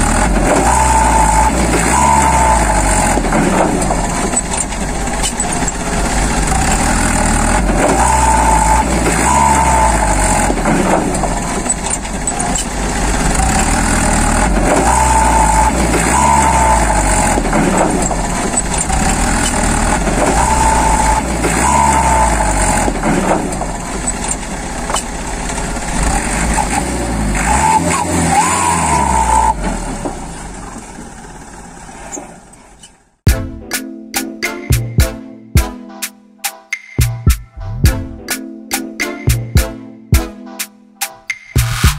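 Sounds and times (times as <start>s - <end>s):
heavy truck engine revving: 0.0s - 33.2s.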